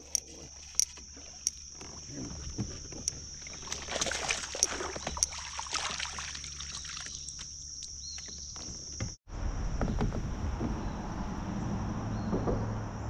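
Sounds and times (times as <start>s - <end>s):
water splashing and trickling: 0.0s - 8.7s
low rumble: 9.3s - 13.0s.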